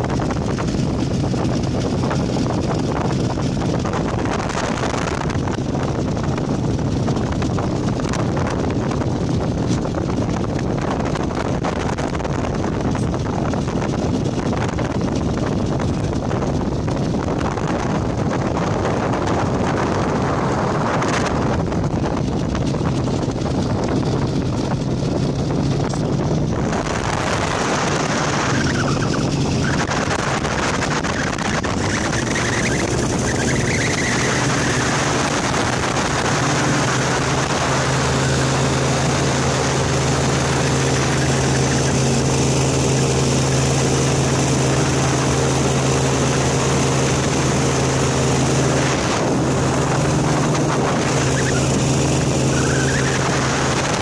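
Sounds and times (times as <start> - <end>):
small aircraft engine droning: 0.0 - 54.0
wind rush on microphone: 0.0 - 54.0.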